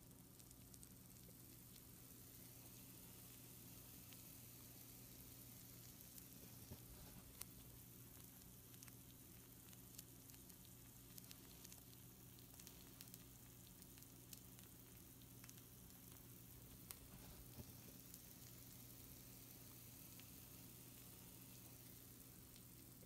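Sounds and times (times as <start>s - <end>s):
food sizzling on a baking sheet: 0.0s - 23.0s
low steady hum: 0.0s - 23.0s
sharp crackles: 0.0s - 23.0s.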